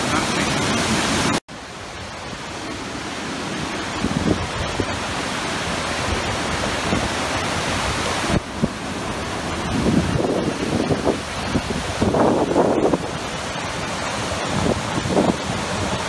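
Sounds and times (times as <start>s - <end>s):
water roaring from dam release: 0.0s - 16.0s
wind thumps on microphone: 4.0s - 5.0s, 7.8s - 13.3s, 14.4s - 16.0s.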